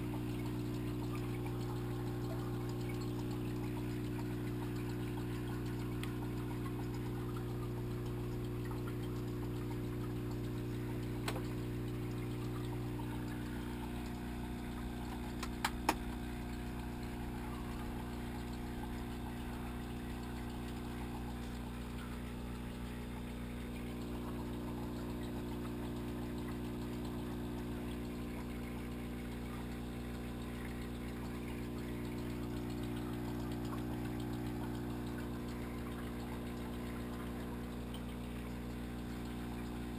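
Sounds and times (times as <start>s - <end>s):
aquarium pump humming: 0.0s - 39.9s
sharp clicks: 15.3s - 16.3s.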